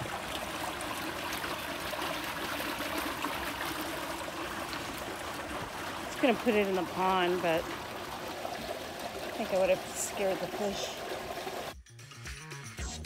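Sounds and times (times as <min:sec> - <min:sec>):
water trickling into pool: 0:00.0 - 0:11.8.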